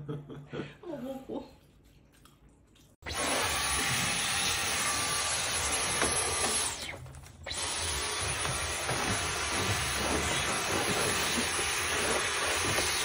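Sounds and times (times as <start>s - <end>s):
cordless vacuum running: 3.1s - 6.9s, 7.5s - 13.0s.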